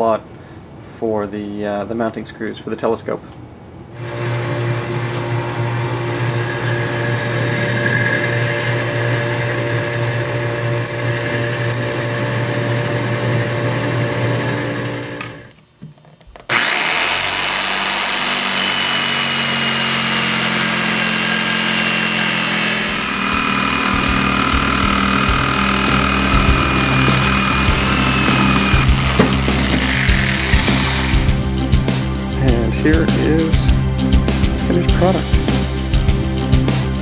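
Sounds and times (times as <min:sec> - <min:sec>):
jigsaw buzzing through metal: 0:04.0 - 0:15.5, 0:16.5 - 0:31.4
lathe running: 0:04.0 - 0:15.5, 0:16.5 - 0:31.4
high squeal of cutting metal: 0:06.2 - 0:13.2, 0:21.4 - 0:31.3.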